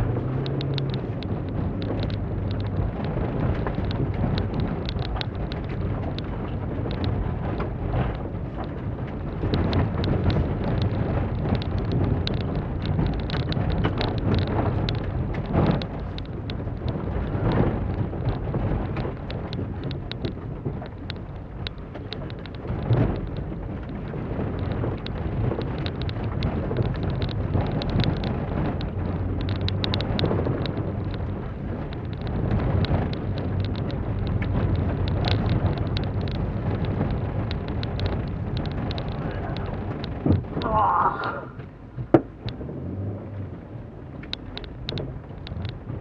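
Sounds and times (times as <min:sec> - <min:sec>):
car engine and tyre rumble: 0:00.0 - 0:46.0
gravel striking car underbody: 0:00.0 - 0:46.0.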